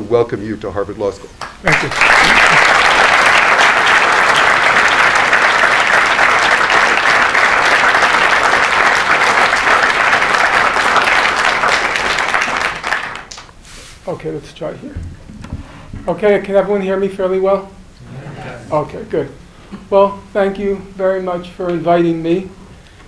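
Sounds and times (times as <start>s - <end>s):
audience applause: 1.6s - 13.5s.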